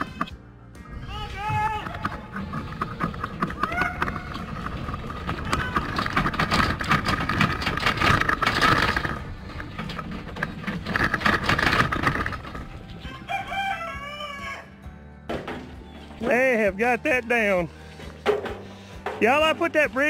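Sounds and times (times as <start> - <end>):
hooves clattering on metal: 1.2 - 13.5, 15.3 - 20.0
wavering animal call: 3.5 - 4.6
rooster crowing: 13.0 - 14.8.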